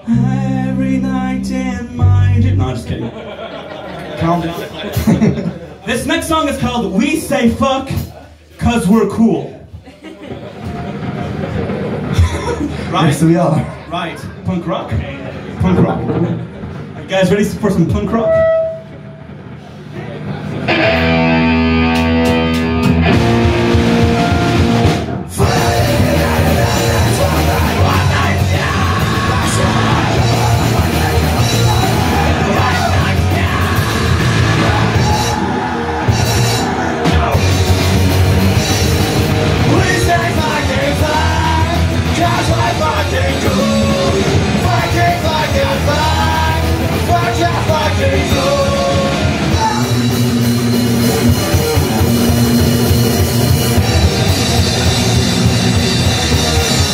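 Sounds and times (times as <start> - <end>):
singer's vocals: 0.0 - 3.0, 25.3 - 37.8, 39.6 - 50.4
bass guitar: 0.0 - 3.2, 10.6 - 56.9
drum kit: 4.6 - 8.4, 18.0 - 56.9
distorted electric guitars: 10.6 - 12.8, 17.8 - 56.9.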